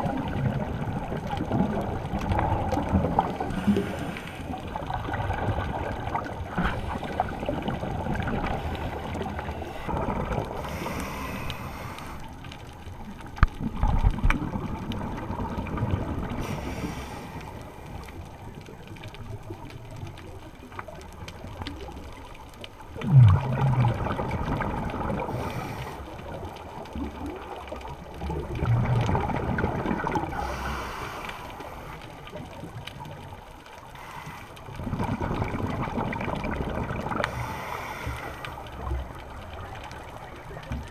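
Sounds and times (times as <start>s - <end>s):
rough watery rumble: 0.0s - 40.9s
underwater gurgling bubbles: 0.0s - 40.9s.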